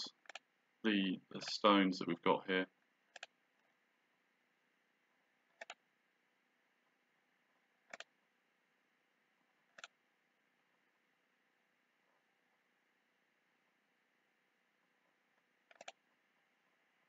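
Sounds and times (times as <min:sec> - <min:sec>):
mouse button clicking: 0:05.6 - 0:05.8, 0:07.9 - 0:08.1, 0:15.7 - 0:16.0.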